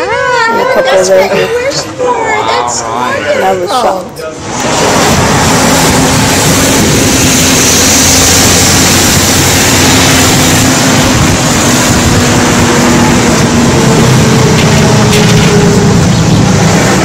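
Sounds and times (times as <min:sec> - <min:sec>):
vehicle noise: 0:04.2 - 0:17.0
wind on microphone: 0:04.5 - 0:17.0.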